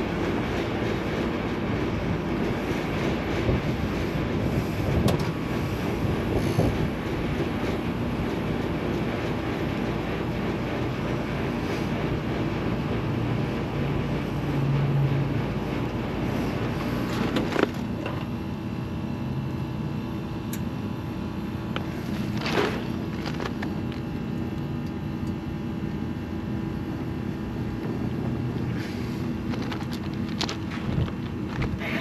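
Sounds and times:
low mechanical hum: 0.0 - 32.0
rushing air: 2.4 - 8.2, 27.9 - 32.0.

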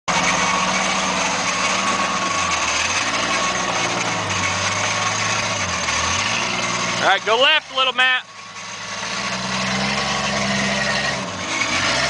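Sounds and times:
engine running at low revs: 0.1 - 12.0.

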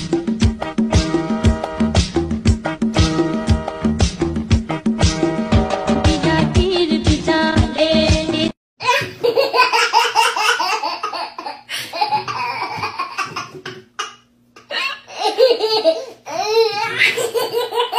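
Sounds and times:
baby laughing: 8.8 - 17.9.

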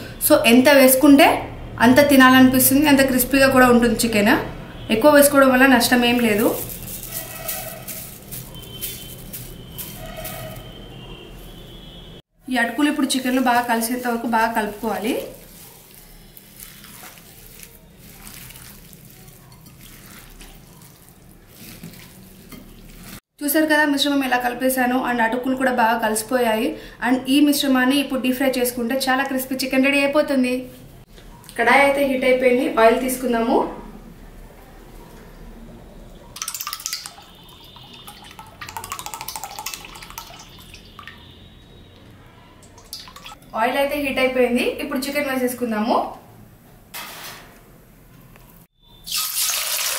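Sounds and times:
wet squelching of kneaded chicken: 5.6 - 11.5, 13.1 - 23.3
oil glugging and splashing: 36.4 - 41.4, 42.6 - 43.5.

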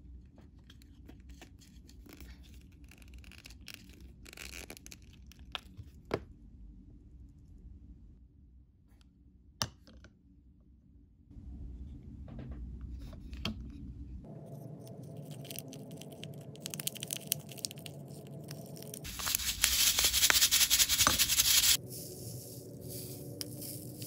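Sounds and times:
plastic packets crinkling: 15.1 - 21.8.

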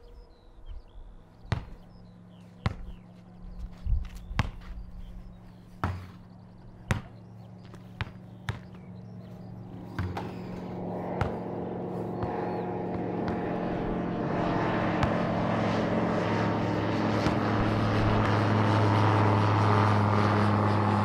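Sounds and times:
light aircraft engine: 0.0 - 21.0
steady low hum: 0.0 - 21.0
basketball bouncing: 1.5 - 1.9, 2.6 - 3.0, 4.4 - 4.8, 5.8 - 6.2, 6.8 - 8.9, 9.8 - 10.5, 11.2 - 11.4, 12.2 - 13.5, 15.0 - 15.2.

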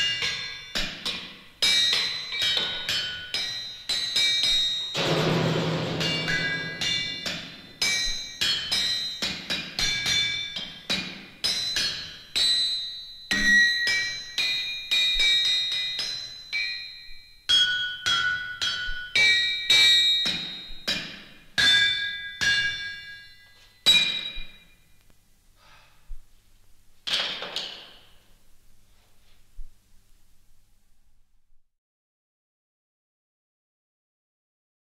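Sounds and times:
hammers ringing on anvils: 0.0 - 24.7.

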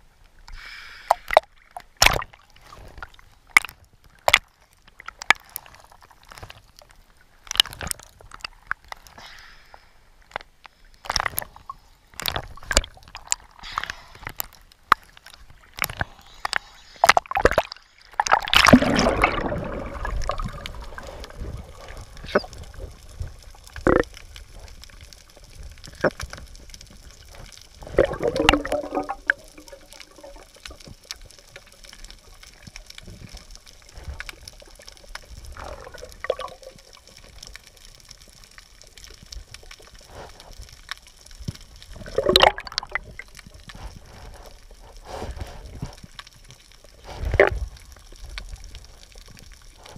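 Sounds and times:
soft hiss of moving water: 0.0 - 49.9
gurgling burst: 18.3 - 21.2, 27.8 - 30.4
underwater clicks and knocks: 22.2 - 24.2, 25.5 - 31.3, 40.9 - 43.8.

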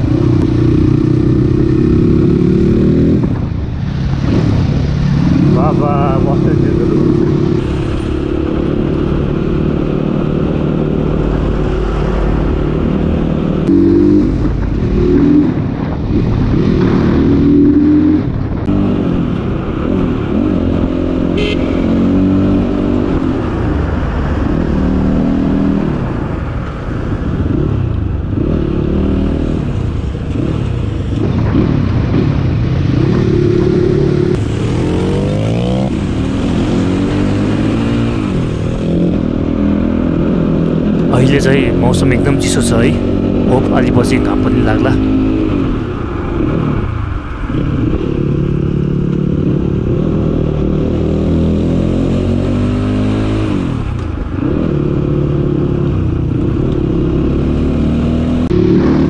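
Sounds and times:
dirt bike engine revving: 31.5 - 45.8, 56.8 - 59.0.

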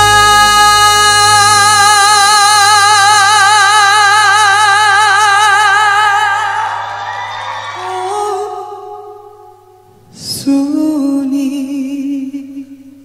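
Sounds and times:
song with held vibrato note: 0.0 - 3.1.

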